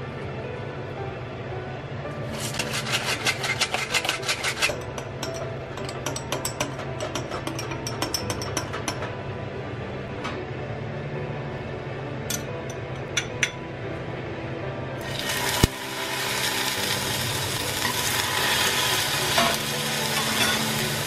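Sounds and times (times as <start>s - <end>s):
fruit sizzling in hot oil: 15.0s - 21.0s.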